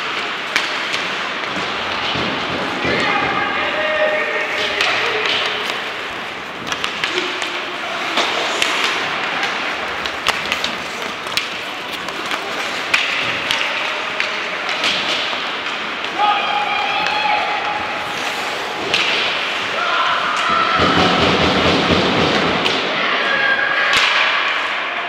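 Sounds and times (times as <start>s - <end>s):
hockey sticks and puck clacking: 0.0s - 25.0s.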